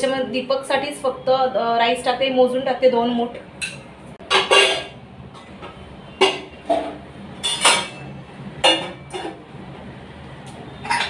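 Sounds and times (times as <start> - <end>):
metal cookware clinking: 3.6 - 5.0, 6.2 - 9.4, 10.8 - 11.0.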